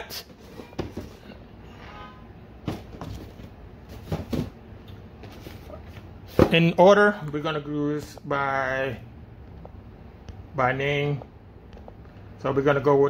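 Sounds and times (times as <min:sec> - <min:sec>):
cardboard boxes being handled: 0:02.7 - 0:04.6.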